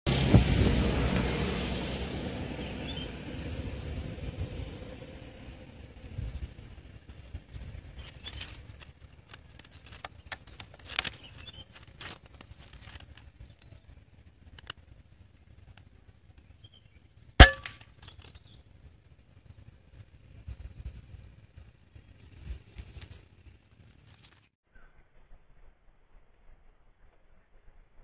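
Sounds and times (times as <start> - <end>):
faint clicks and rustling: 8.0 - 13.9
air rifle shot: 17.4 - 17.8.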